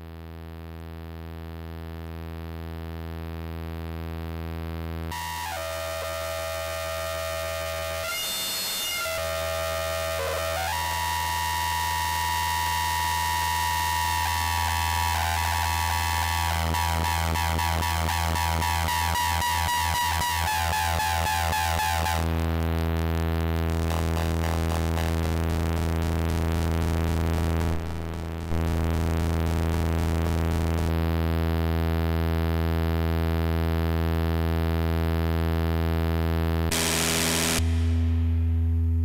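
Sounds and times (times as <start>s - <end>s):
low electronic drone: 13.9s - 32.0s, 36.5s - 39.0s.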